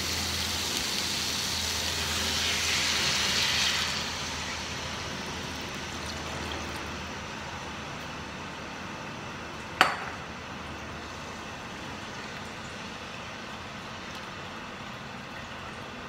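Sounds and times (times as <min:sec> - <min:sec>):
steady hiss: 0:00.0 - 0:08.7.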